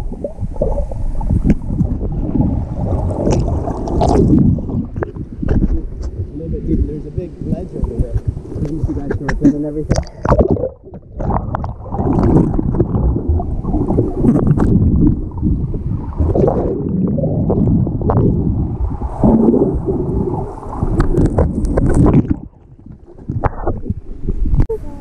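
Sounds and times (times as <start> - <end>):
muffled underwater wash: 0.0 - 25.0
sharp knocks and splashes: 0.6 - 6.4.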